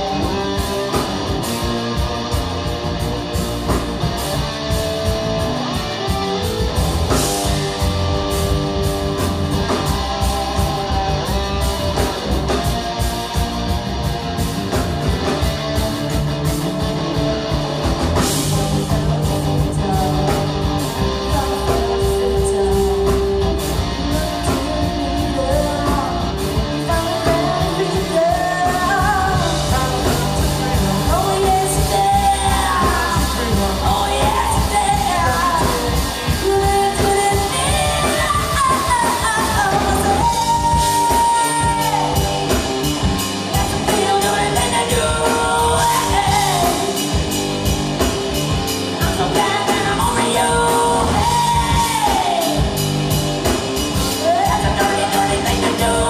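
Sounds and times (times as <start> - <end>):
rock band playing: 0.0 - 56.0
woman singing: 18.2 - 47.2, 49.0 - 52.8, 53.9 - 56.0.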